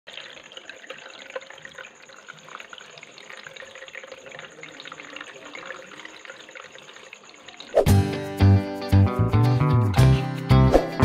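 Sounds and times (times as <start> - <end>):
fountain water trickling: 0.1 - 8.0
water drips: 0.1 - 8.0.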